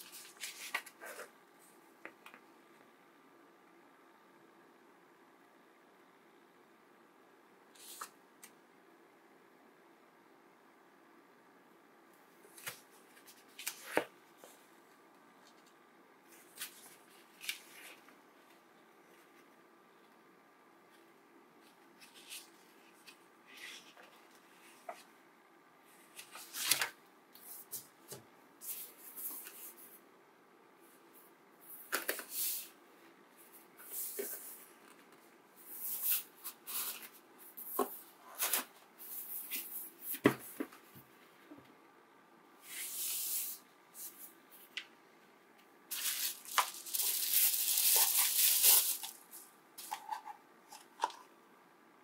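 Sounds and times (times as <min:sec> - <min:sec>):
paper pages turning: 0:00.0 - 0:01.3, 0:12.6 - 0:14.1, 0:26.1 - 0:27.0.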